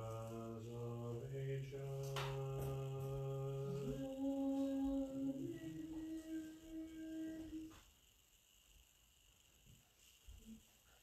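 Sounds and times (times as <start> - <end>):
higher voice singing response: 0.0 - 7.8
priest intoning chant: 0.0 - 7.8.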